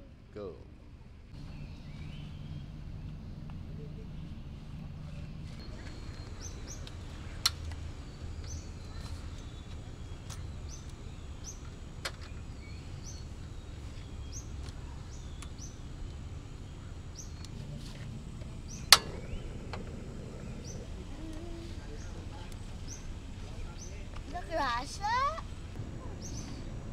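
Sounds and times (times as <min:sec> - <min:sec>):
low background noise: 0:00.0 - 0:26.9
small birds chirping: 0:01.3 - 0:26.9
stove igniter click: 0:18.9 - 0:19.9.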